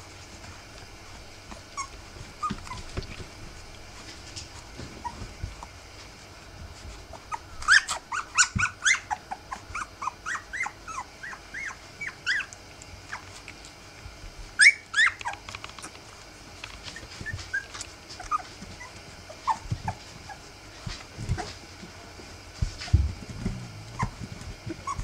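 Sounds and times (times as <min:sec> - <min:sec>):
puppies squeaking and whimpering: 0:01.5 - 0:03.2, 0:04.4 - 0:05.6, 0:07.0 - 0:13.5, 0:14.6 - 0:16.1, 0:16.8 - 0:21.6, 0:22.6 - 0:25.0.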